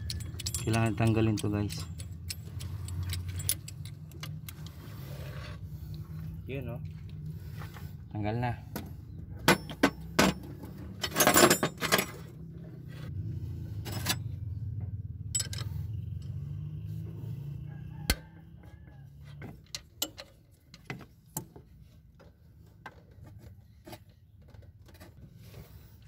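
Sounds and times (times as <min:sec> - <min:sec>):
metal tools clinking and knocking: 0:00.0 - 0:04.7, 0:09.4 - 0:12.5, 0:15.2 - 0:16.3, 0:19.5 - 0:21.6.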